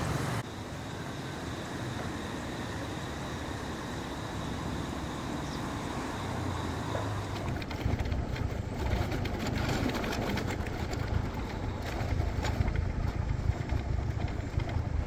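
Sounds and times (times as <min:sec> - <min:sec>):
car engine running low: 0:01.2 - 0:15.0
wind buffeting microphone: 0:07.2 - 0:15.0.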